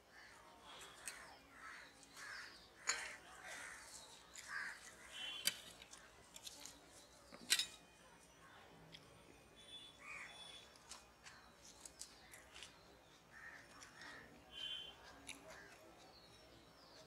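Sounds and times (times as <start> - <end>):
eating sounds: 11.9 - 16.4.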